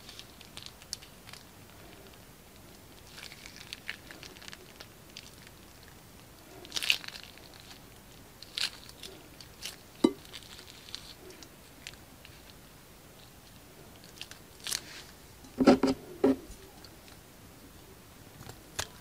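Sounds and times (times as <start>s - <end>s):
plastic crinkling: 0.0s - 12.6s, 13.2s - 15.2s.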